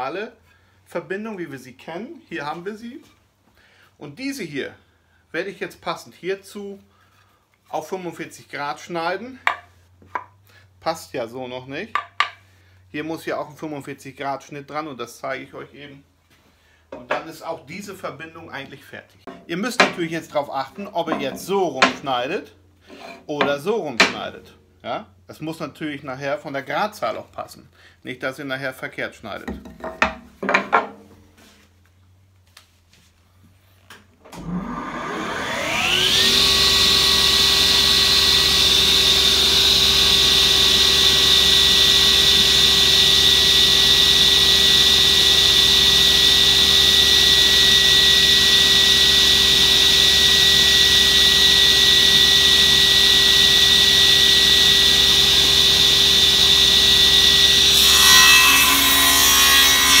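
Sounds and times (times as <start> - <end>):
wood knocking: 12.0 - 12.4, 29.4 - 31.0
table saw running: 34.4 - 60.0
saw blade cutting wood: 35.2 - 60.0.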